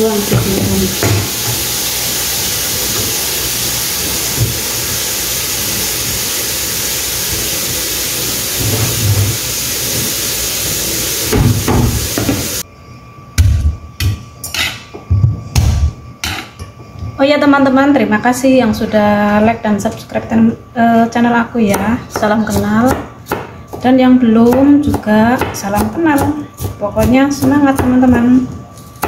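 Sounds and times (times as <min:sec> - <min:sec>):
tap water running into sink: 0:00.1 - 0:12.6
kitchen utensils knocking and clinking: 0:15.6 - 0:16.7.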